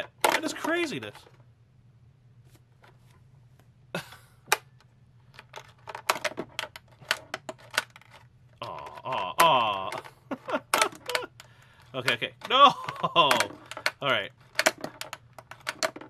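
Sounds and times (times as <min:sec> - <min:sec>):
plastic pinball flippers clicking: 0:05.4 - 0:16.0.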